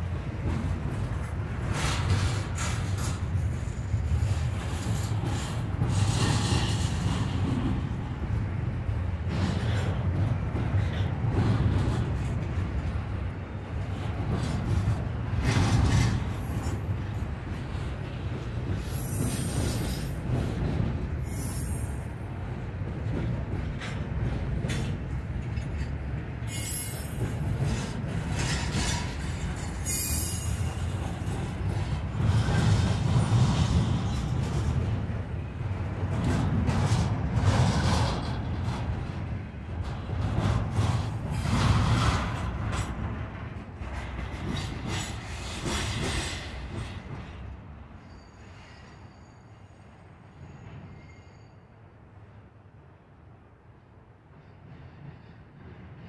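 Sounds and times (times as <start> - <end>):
train cars rumbling on rails: 0.0 - 56.0
wheels squealing: 28.4 - 30.9.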